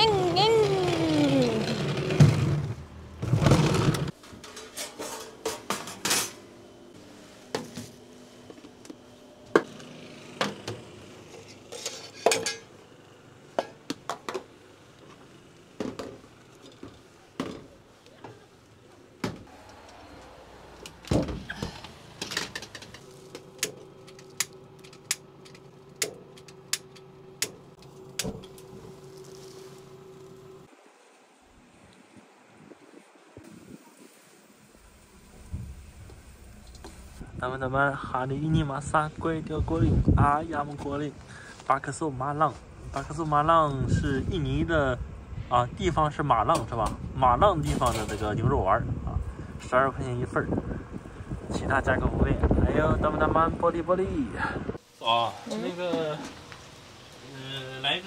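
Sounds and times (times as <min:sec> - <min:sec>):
rumble: 0:34.8 - 0:37.7.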